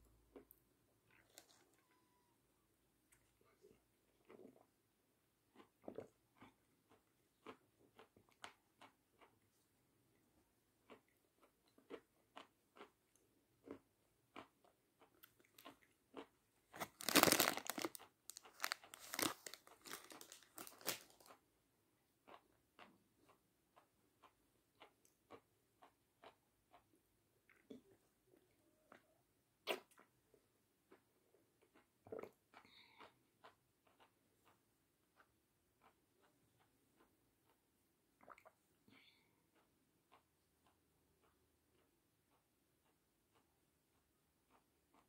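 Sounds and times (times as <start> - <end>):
chewing dry cracker: 0.3 - 2.4, 5.4 - 30.2, 30.8 - 45.0
plastic wrapper crinkling: 16.7 - 21.3.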